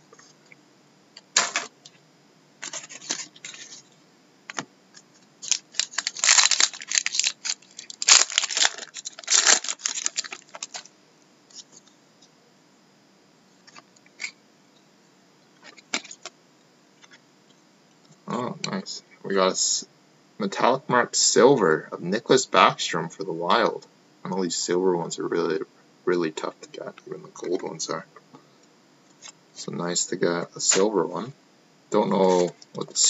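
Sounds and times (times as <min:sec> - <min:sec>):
card pack wrapper tearing: 0:05.4 - 0:10.9.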